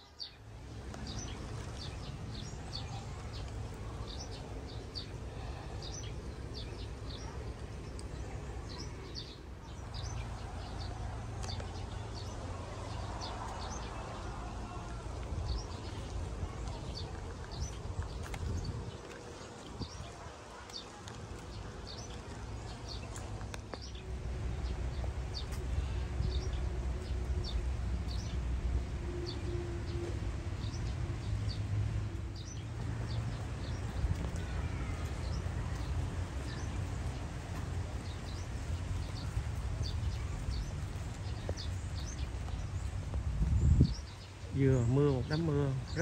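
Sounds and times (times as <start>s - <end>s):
steady low rumble: 0.4s - 46.0s.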